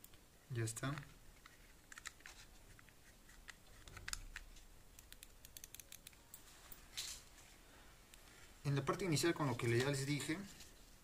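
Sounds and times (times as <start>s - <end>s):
plastic mouse parts clicking: 0.9s - 6.2s.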